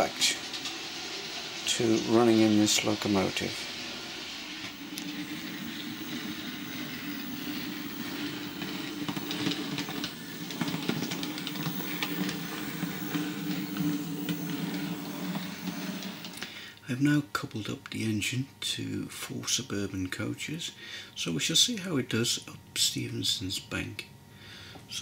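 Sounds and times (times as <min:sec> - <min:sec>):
wheels clicking on rails: 0:00.0 - 0:16.5
model locomotive motor whirring: 0:00.0 - 0:16.6.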